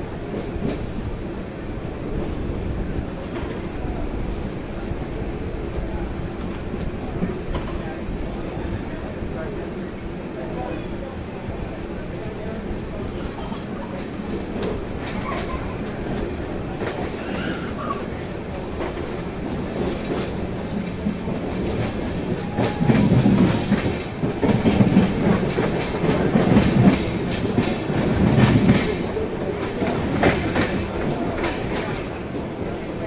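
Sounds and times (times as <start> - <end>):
train wheels clattering on rails: 0.0 - 1.3, 2.0 - 9.5, 12.4 - 33.0.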